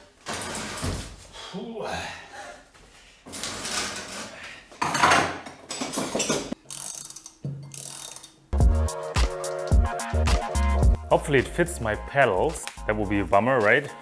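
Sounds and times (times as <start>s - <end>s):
metal tools clicking and rattling: 4.9s - 8.6s.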